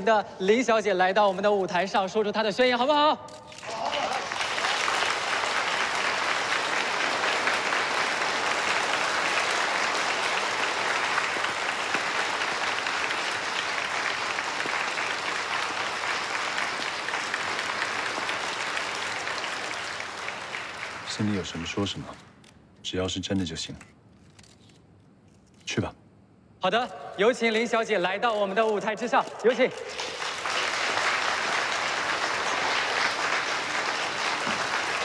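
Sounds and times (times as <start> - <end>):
audience applauding: 3.6 - 22.2, 29.3 - 35.0.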